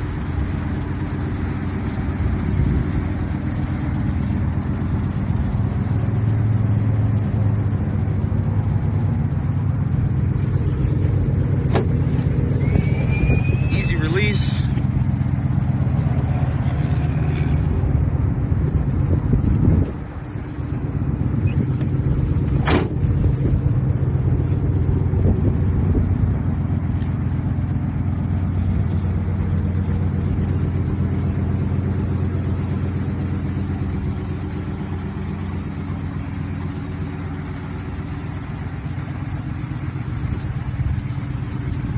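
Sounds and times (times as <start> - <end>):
truck engine idling: 0.0 - 41.9
thump: 11.7 - 12.0, 22.6 - 23.1.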